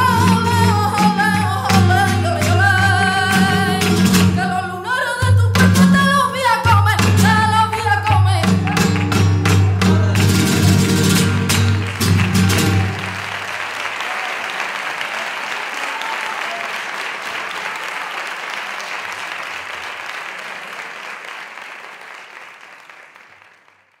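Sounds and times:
audience applauding: 0:08.0 - 0:24.0.

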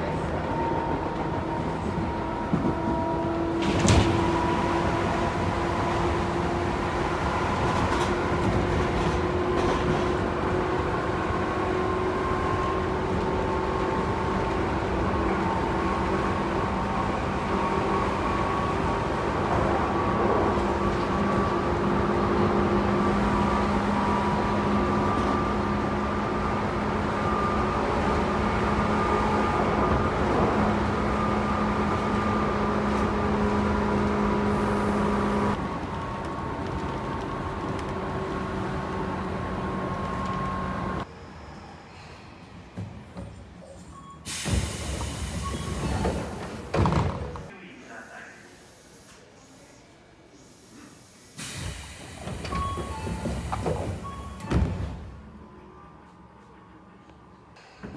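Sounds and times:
train rolling noise: 0:00.0 - 0:47.5, 0:51.0 - 0:57.9.

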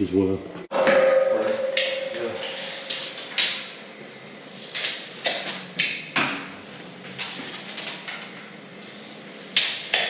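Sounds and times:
sharp knocks with ringing tail: 0:00.7 - 0:03.7.

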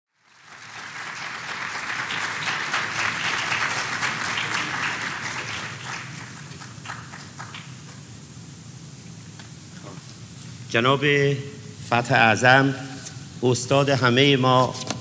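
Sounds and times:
audience applauding: 0:00.1 - 0:08.2.

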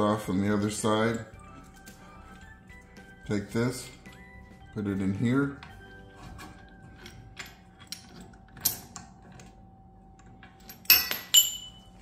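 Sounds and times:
sharp ringing metal clinks: 0:10.6 - 0:12.0.

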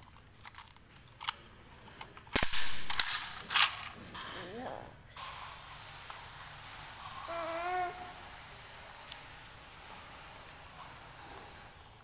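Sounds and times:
plastic toy clicking and rattling: 0:00.0 - 0:03.9
loud sharp snap: 0:02.4 - 0:03.4.

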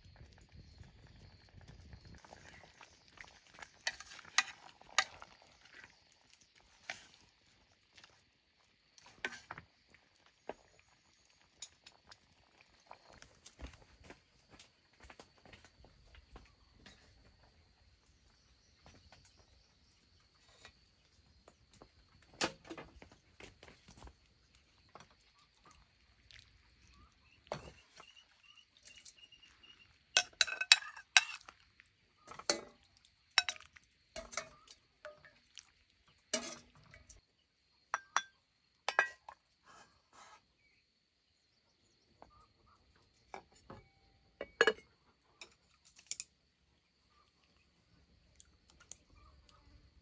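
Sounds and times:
dishes and utensils clinking: 0:30.2 - 0:31.5, 0:32.3 - 0:32.8, 0:33.4 - 0:35.3, 0:36.3 - 0:37.2, 0:38.0 - 0:39.4, 0:43.3 - 0:46.2.

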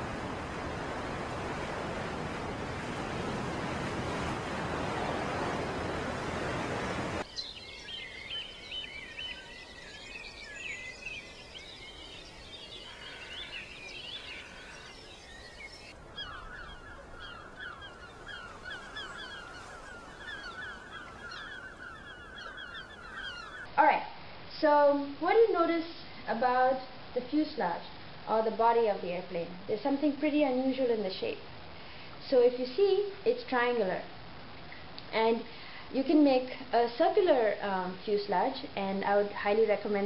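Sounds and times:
birds calling and chirping: 0:07.2 - 0:23.7.

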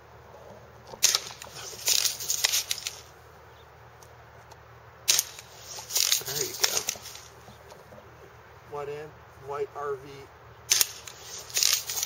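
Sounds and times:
air rifle shots: 0:01.0 - 0:03.1, 0:05.0 - 0:07.3, 0:10.7 - 0:12.0.

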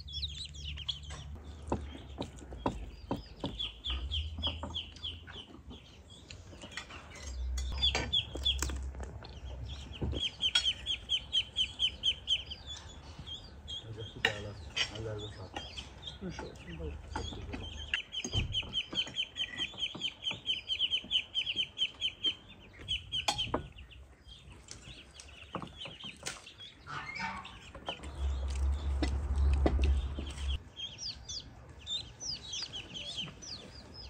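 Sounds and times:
chickens clucking and peeping: 0:00.0 - 0:34.0.

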